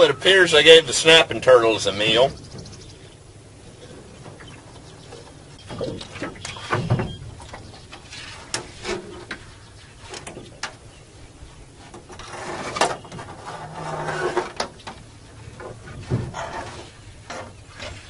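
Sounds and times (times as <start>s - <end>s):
line scraping against boat: 0.0s - 18.0s
knocks and clicks on boat: 4.2s - 10.8s, 14.4s - 18.0s.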